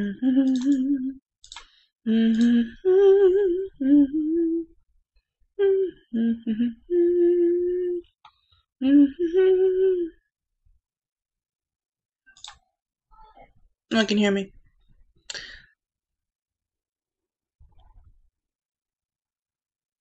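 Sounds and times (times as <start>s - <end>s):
person humming: 0.0s - 1.2s, 2.1s - 4.8s, 5.6s - 8.1s, 8.8s - 10.2s.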